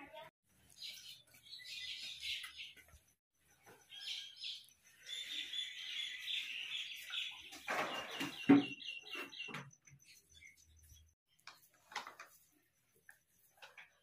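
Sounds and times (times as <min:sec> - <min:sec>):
small birds chirping: 0:00.1 - 0:14.0.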